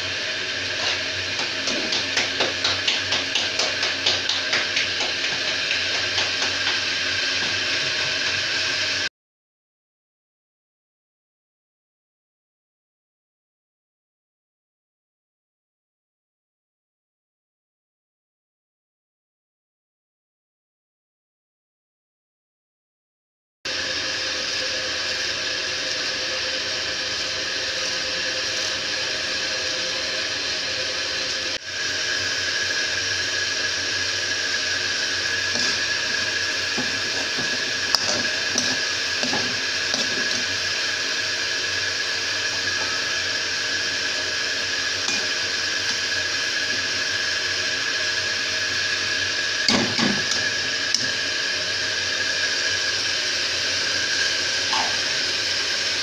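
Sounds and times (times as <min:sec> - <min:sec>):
food frying hiss: 0:00.0 - 0:09.1, 0:23.7 - 0:56.0
spoon scraping pan: 0:00.7 - 0:06.7, 0:35.5 - 0:40.9, 0:45.0 - 0:46.0.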